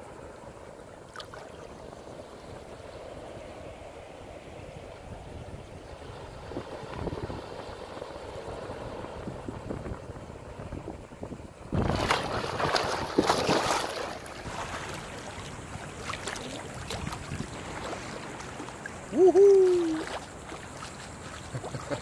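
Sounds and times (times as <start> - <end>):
beach water washing: 0.0 - 22.0
wind on the microphone: 2.3 - 22.0.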